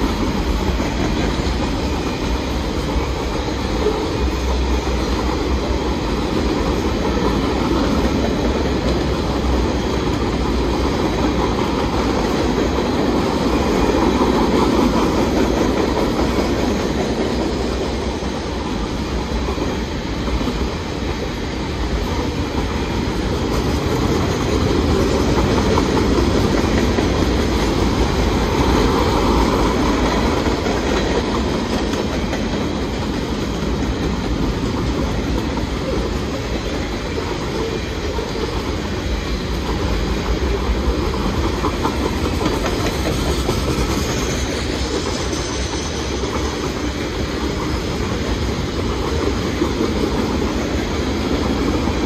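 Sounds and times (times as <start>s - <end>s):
railroad cars rumbling on track: 0.0s - 52.0s.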